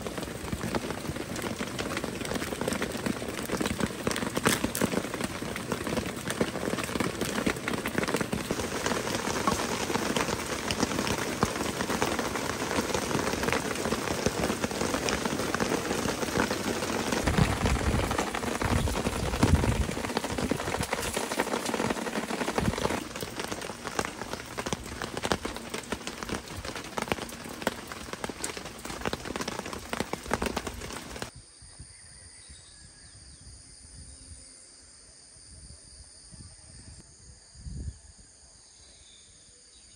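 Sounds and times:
steady rain falling: 0:00.0 - 0:31.3
insects trilling: 0:00.1 - 0:39.9.

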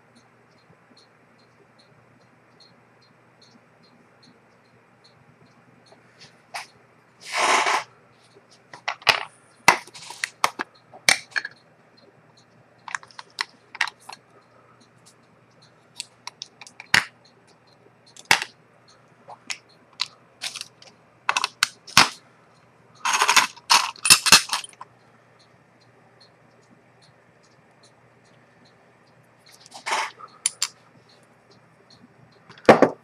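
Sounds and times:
faint steady hum: 0:00.0 - 0:33.0
small sharp clicks and taps: 0:15.0 - 0:18.6.

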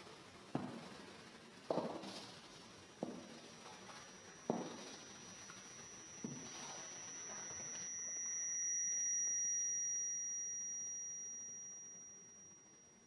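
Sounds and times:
microphone feedback whistle: 0:03.6 - 0:13.0.

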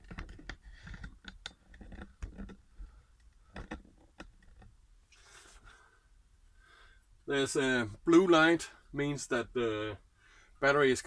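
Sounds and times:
light clicks and knocks: 0:00.0 - 0:04.8.

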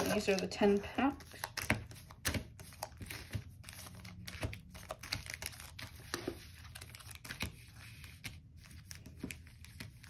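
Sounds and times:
foil wrappers crinkling: 0:00.0 - 0:01.7, 0:02.8 - 0:07.3.

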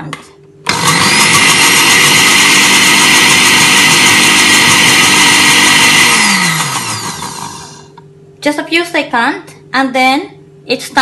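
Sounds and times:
blender motor running: 0:00.7 - 0:08.0.

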